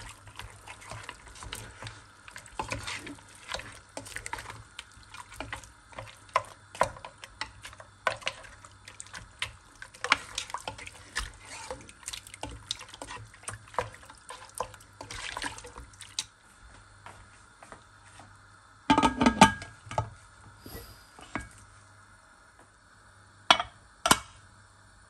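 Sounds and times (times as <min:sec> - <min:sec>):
utensil scraping a cooking pan: 0:00.0 - 0:15.8
faint liquid sizzle: 0:00.0 - 0:16.8, 0:19.6 - 0:25.0.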